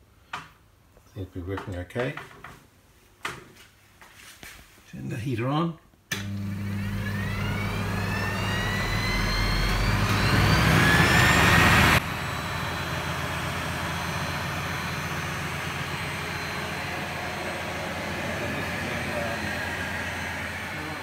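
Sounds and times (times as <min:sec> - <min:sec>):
lathe motor and pulleys running: 0:06.2 - 0:21.0
rising whine: 0:06.3 - 0:21.0.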